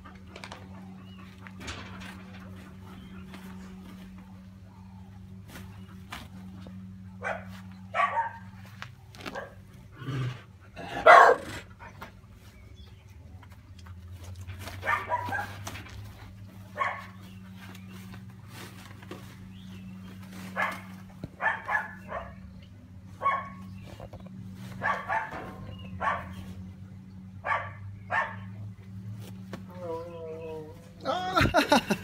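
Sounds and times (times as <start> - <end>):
steady low hum: 0.0 - 32.0
bark-like animal calls: 7.2 - 8.5, 10.8 - 11.7, 14.8 - 15.6, 20.5 - 22.4, 24.7 - 26.5, 27.4 - 28.5.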